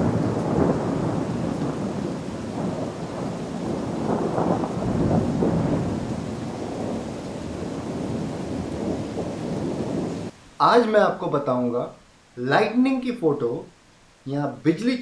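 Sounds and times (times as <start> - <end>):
thunder rumbling: 0.0 - 10.9
steady rain: 0.0 - 15.0.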